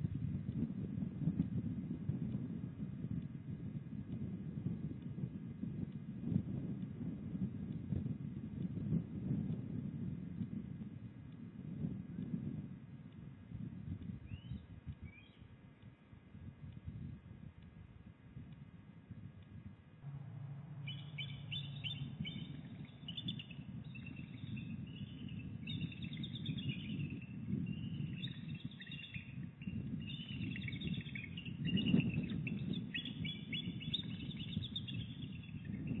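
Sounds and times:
low rumble: 20.0s - 29.0s
eagles chirping: 20.1s - 35.9s.

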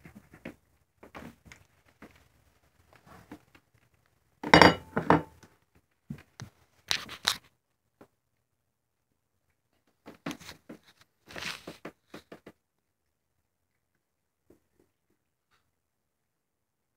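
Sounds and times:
food dish clinking on hard floor: 4.4s - 5.4s.

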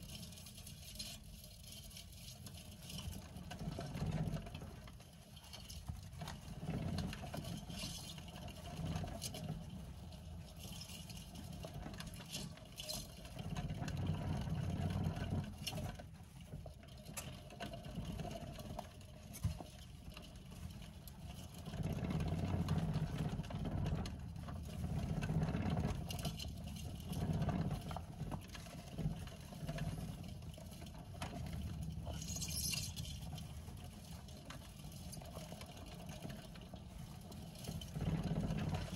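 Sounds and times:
hamster wheel rumbling: 0.0s - 38.9s.

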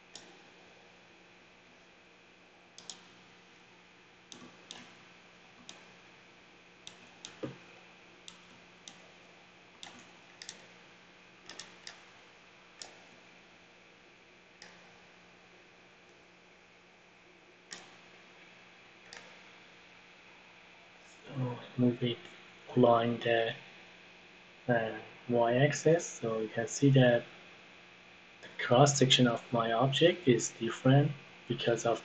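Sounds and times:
computer mouse clicking: 0.1s - 0.5s, 2.8s - 3.2s, 4.3s - 5.0s, 5.6s - 5.9s, 6.8s - 9.2s, 9.8s - 10.8s, 11.4s - 12.2s, 17.7s - 18.0s, 19.1s - 19.4s.

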